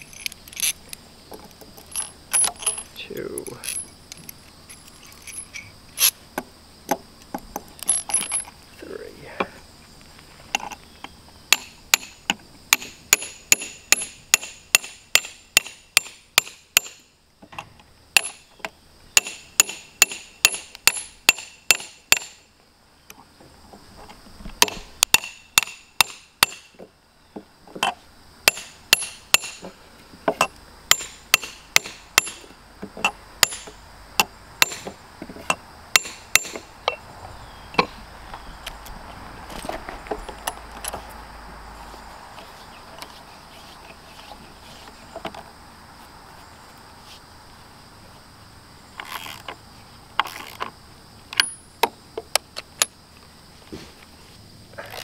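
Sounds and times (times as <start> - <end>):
hammer striking steel rod: 11.6 - 17.1, 19.2 - 22.4, 24.6 - 26.7, 28.5 - 29.7, 30.9 - 32.5, 33.4 - 33.8, 34.6 - 34.9, 36.0 - 37.0.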